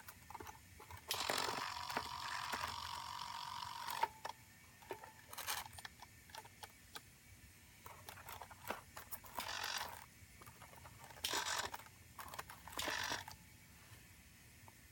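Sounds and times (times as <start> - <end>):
servo motor bursts: 1.1 - 4.1, 9.4 - 10.0, 11.2 - 13.3.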